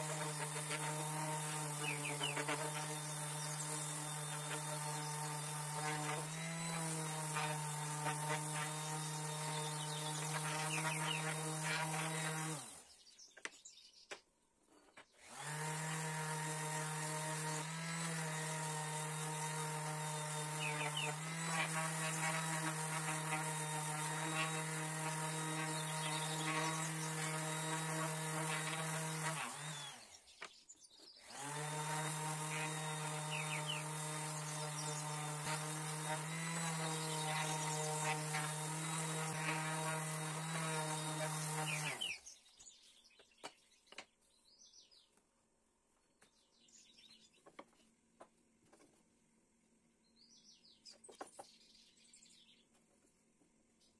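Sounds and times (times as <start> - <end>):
orbital sander whirring: 0.0 - 13.1, 14.9 - 30.5, 31.2 - 42.4.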